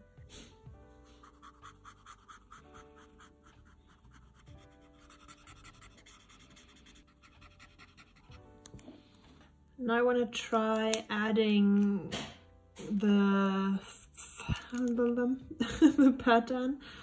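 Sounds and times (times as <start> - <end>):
soft background music: 0.0 - 17.0
marker scratching on paper: 1.0 - 8.5.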